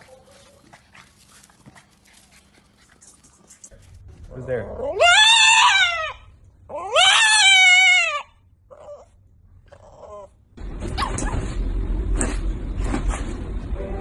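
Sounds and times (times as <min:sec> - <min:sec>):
dog whimpers: 0:04.8 - 0:10.3
dog whining cry: 0:04.8 - 0:11.6.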